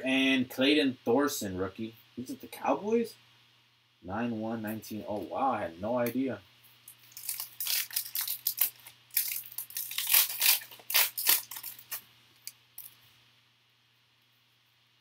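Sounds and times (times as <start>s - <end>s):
foil wrapper crinkling: 6.9s - 13.0s.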